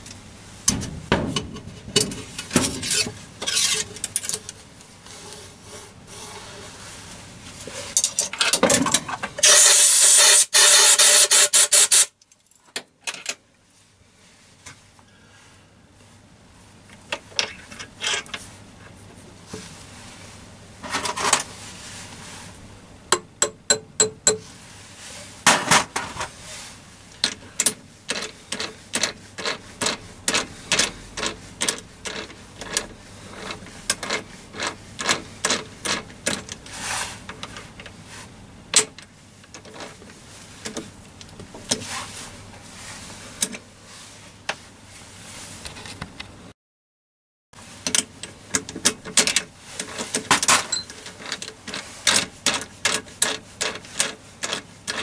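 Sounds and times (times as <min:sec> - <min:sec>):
ringing metal taps: 0:23.1 - 0:24.4.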